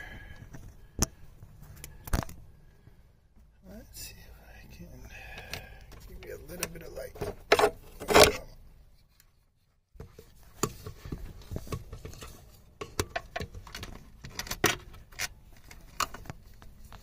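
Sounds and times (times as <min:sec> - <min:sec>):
handling rustles: 0:05.4 - 0:17.0.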